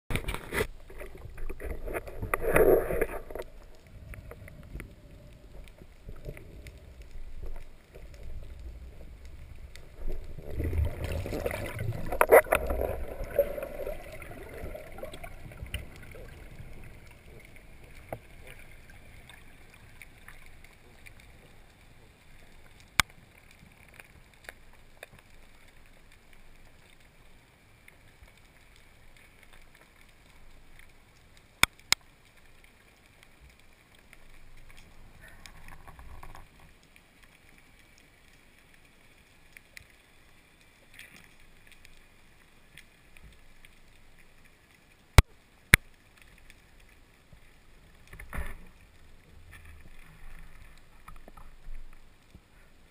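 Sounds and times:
water sloshing and rushing: 0:00.1 - 0:27.9
sharp clicks underwater: 0:00.1 - 0:52.5
muffled underwater hiss: 0:00.1 - 0:52.9.

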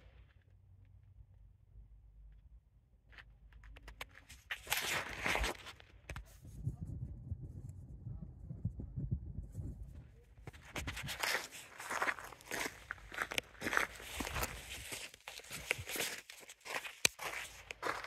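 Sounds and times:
wind rumbling on microphone: 0:06.2 - 0:16.0
footsteps on gravel: 0:10.5 - 0:18.0.

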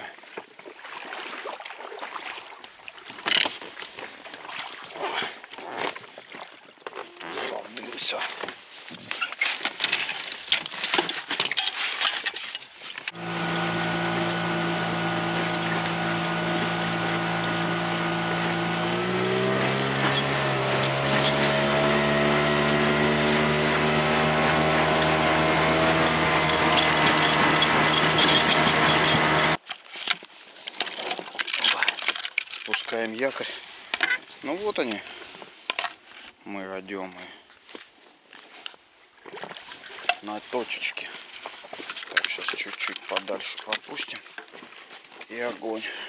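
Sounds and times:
outboard motor running: 0:13.1 - 0:29.6
gear knocking and clattering: 0:26.1 - 0:29.6.

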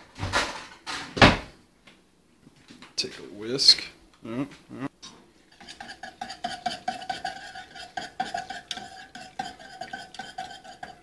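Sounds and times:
whisk clinking in metal saucepan: 0:05.5 - 0:11.0.

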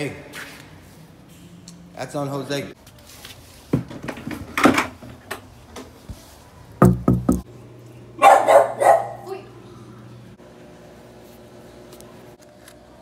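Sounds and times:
knocking on wooden door: 0:06.8 - 0:07.4.

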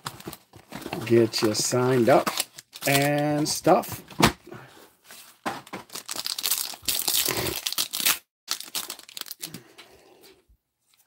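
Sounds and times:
foil wrapper crinkling: 0:05.9 - 0:09.5.

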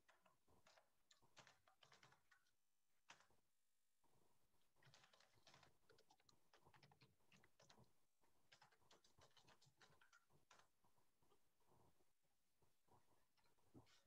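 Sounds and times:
typing on computer keyboard: 0:00.0 - 0:03.4, 0:04.8 - 0:10.8.

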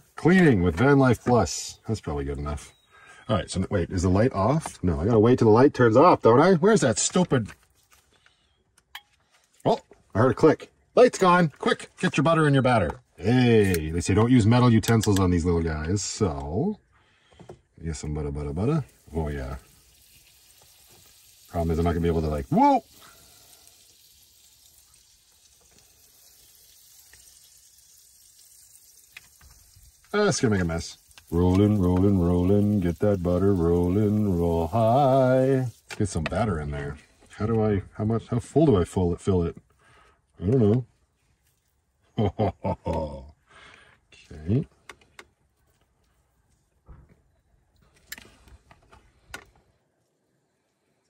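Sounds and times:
butter sizzling on hot plate: 0:18.9 - 0:36.2.

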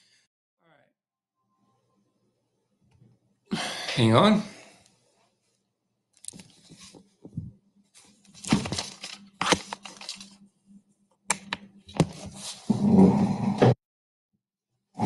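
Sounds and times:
rustling and handling noises: 0:06.2 - 0:10.5.

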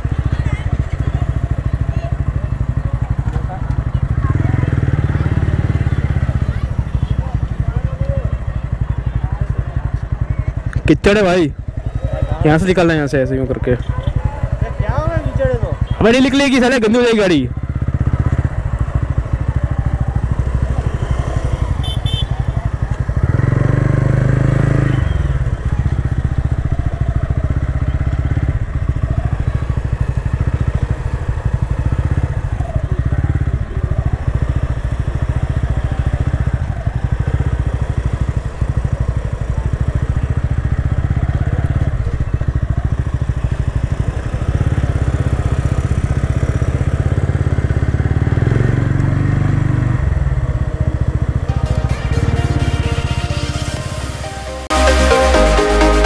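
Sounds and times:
motorcycle engine running: 0:00.0 - 0:54.7.

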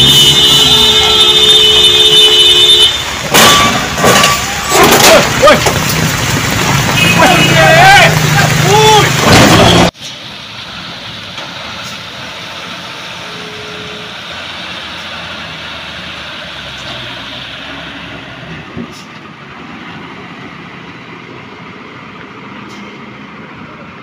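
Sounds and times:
traffic on wet road: 0:00.0 - 0:24.0
brief tone: 0:13.2 - 0:14.1.

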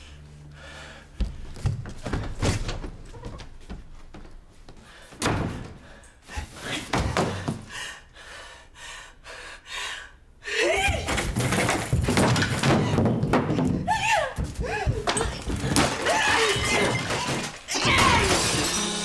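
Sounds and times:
thuds and knocks: 0:05.2 - 0:05.9, 0:11.1 - 0:17.6.

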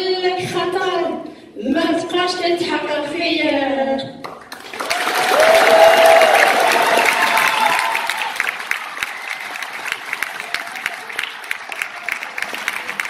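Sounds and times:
audience applauding: 0:04.3 - 0:13.0.

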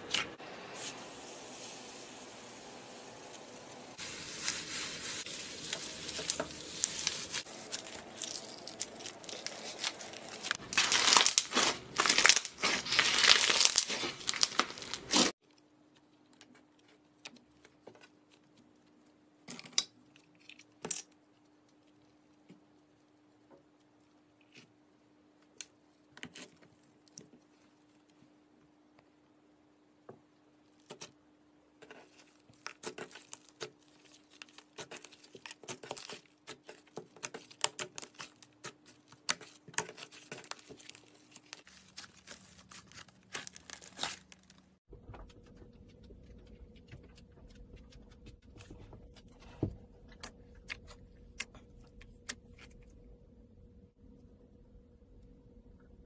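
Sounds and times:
slime crinkly crackling: 0:04.0 - 0:15.4, 0:32.0 - 0:44.8
low steady hum: 0:44.3 - 0:56.0.

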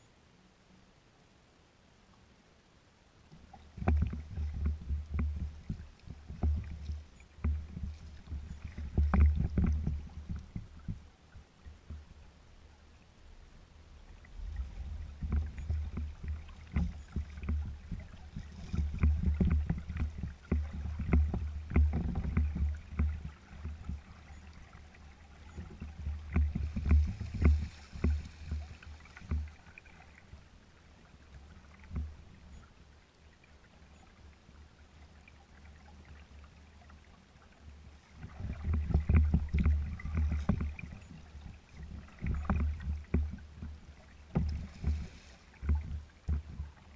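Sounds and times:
small waves slapping on hull: 0:03.3 - 0:46.9
wind buffeting microphone: 0:25.6 - 0:29.6.

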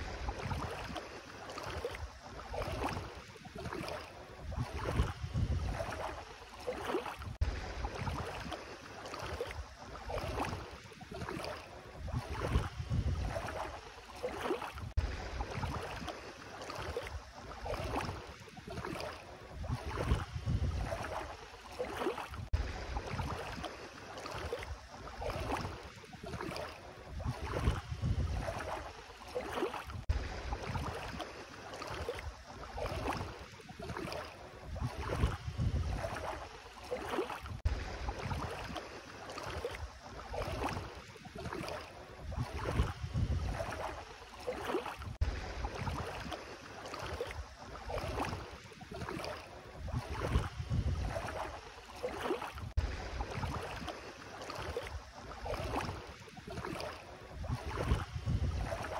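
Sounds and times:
wind rumbling on microphone: 0:00.0 - 0:01.0, 0:01.7 - 0:06.3, 0:07.2 - 0:08.6, 0:11.3 - 0:13.8, 0:14.7 - 0:16.1, 0:18.8 - 0:21.4, 0:22.3 - 0:23.6, 0:26.4 - 0:29.0, 0:29.8 - 0:31.2, 0:34.0 - 0:36.5, 0:37.4 - 0:38.8, 0:39.8 - 0:44.1, 0:45.0 - 0:46.3, 0:47.4 - 0:51.7, 0:52.5 - 0:53.9, 0:54.9 - 0:58.9
feet wading in shallow water: 0:00.0 - 0:58.9.

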